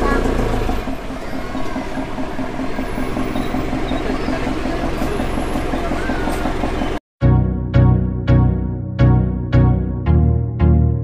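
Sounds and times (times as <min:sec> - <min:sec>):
vehicle engine droning: 0:00.0 - 0:07.0.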